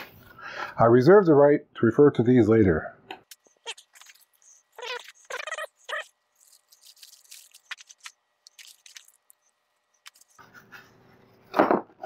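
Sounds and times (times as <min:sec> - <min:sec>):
plastic bags crackling: 0:06.4 - 0:09.5.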